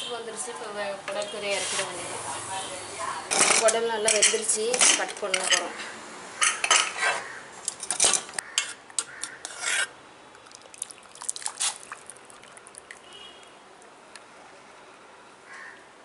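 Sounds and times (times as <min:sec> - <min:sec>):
metal utensil scraping a pot: 0:03.3 - 0:05.7, 0:07.8 - 0:10.0.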